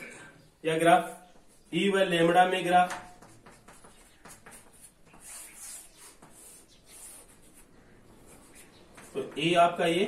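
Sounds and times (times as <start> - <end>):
chalk scratching on a chalkboard: 2.9 - 9.4.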